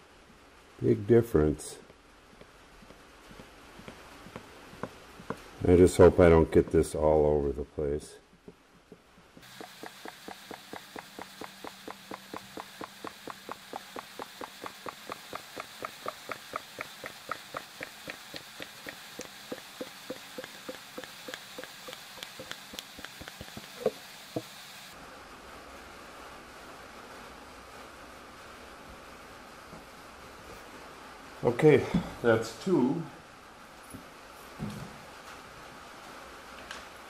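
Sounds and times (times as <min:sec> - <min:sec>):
sharp knocks: 0:08.4 - 0:24.5.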